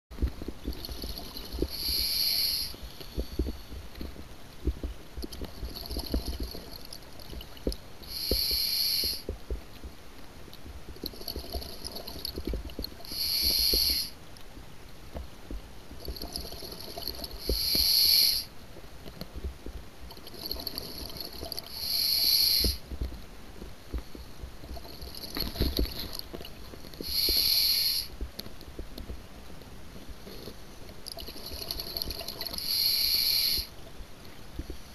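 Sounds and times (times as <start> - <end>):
exhaled air bubbling: 0.1 - 9.7, 10.6 - 14.2, 15.2 - 29.2, 30.2 - 33.8
regulator breathing hiss: 1.1 - 3.8, 8.0 - 9.3, 13.0 - 14.2, 17.3 - 18.5, 21.7 - 22.8, 27.0 - 28.1, 32.5 - 33.8.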